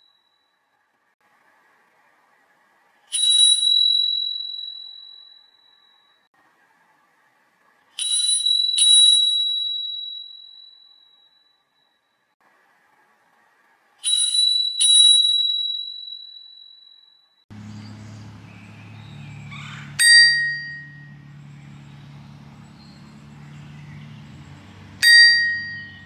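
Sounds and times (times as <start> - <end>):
high bicycle bell ring: 3.1 - 6.3, 8.0 - 11.6, 14.0 - 17.4, 20.0 - 24.4, 25.0 - 26.0
lower bicycle bell ring: 3.1 - 6.3, 8.0 - 12.1, 14.0 - 17.4, 18.7 - 26.0
low background hum: 17.5 - 26.0.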